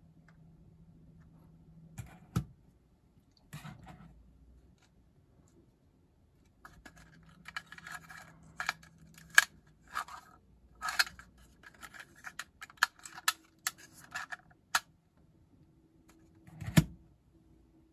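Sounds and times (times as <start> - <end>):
plastic clicks and scrapes: 6.6 - 14.9.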